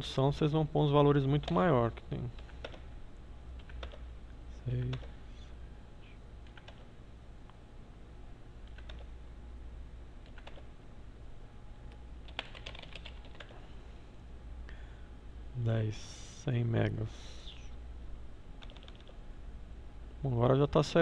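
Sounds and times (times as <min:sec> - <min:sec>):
computer keyboard typing: 0:01.4 - 0:01.7, 0:02.4 - 0:02.8, 0:03.6 - 0:04.0, 0:04.7 - 0:05.2, 0:06.4 - 0:06.9, 0:08.6 - 0:09.1, 0:10.2 - 0:10.7, 0:12.2 - 0:13.6, 0:18.6 - 0:19.2.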